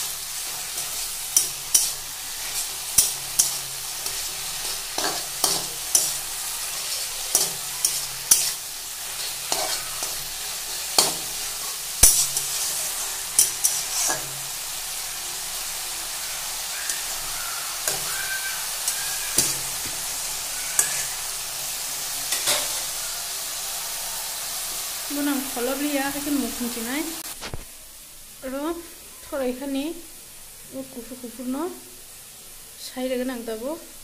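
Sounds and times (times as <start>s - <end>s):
metal spatula scraping a pan: 0.0s - 14.6s, 16.5s - 21.4s, 22.2s - 23.1s
greens sizzling in oil: 0.0s - 34.0s.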